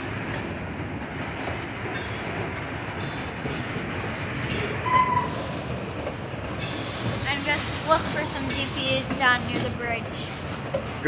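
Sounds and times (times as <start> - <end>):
train wheels rumbling on rail: 0.0 - 11.0
high-pitched wheel squeals: 4.8 - 5.5.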